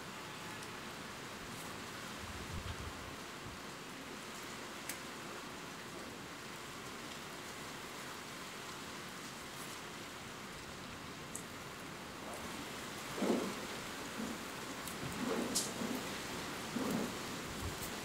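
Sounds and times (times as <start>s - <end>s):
rain hiss: 0.0s - 18.0s.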